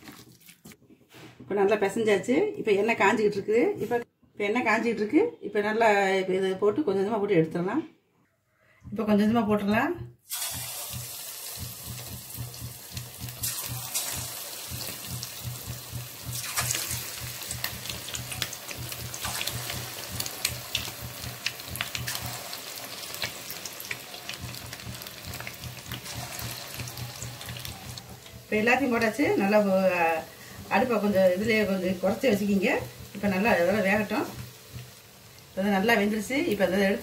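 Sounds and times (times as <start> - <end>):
oil sizzling and crackling: 10.2 - 37.0.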